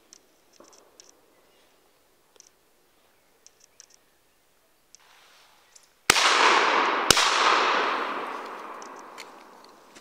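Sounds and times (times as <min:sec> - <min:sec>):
gunshot echo: 0:06.1 - 0:09.6
shotgun shots: 0:06.1 - 0:09.6.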